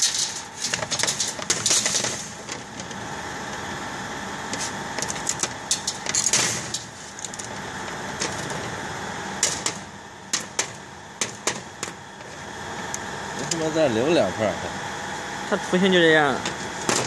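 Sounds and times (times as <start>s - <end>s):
fans whirring: 0.0s - 17.0s.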